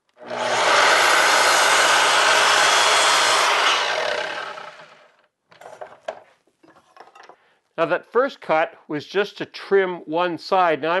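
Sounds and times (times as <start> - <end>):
miter saw cutting wood: 0.2 - 5.2.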